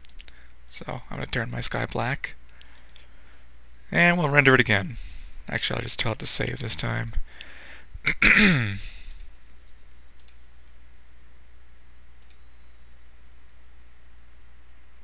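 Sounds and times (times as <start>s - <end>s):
computer mouse clicks: 10.2s - 10.4s, 12.2s - 12.4s.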